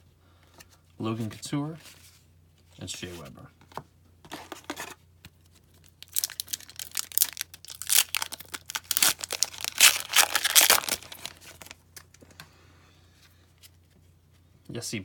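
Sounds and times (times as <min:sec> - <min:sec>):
plastic wrapper crinkling: 0:05.6 - 0:12.1.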